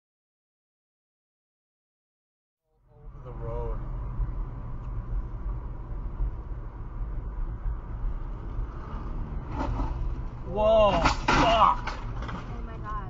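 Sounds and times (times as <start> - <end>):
car road and engine noise: 2.7 - 13.0.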